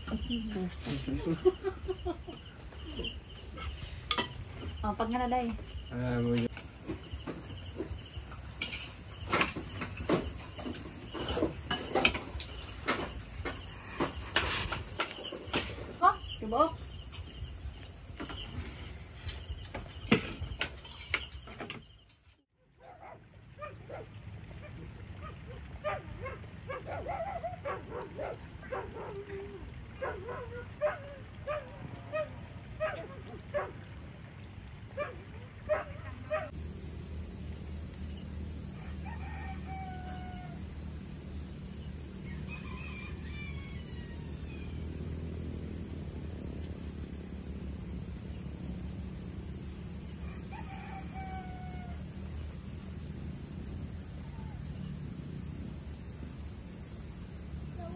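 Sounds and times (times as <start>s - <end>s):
crickets and insects chirping: 0.0s - 57.9s
plates and utensils clinking: 4.0s - 4.4s, 10.6s - 13.0s, 20.1s - 22.2s.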